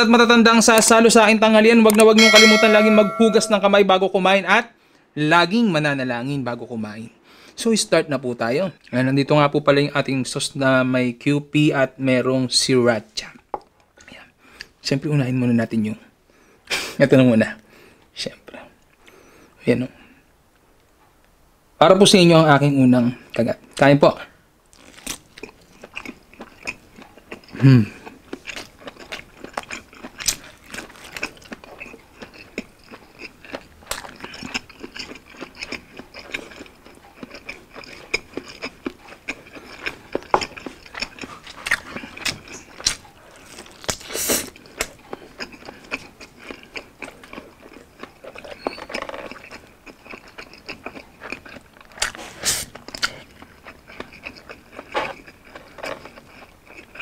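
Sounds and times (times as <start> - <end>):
chewing and crunching: 24.7 - 57.0.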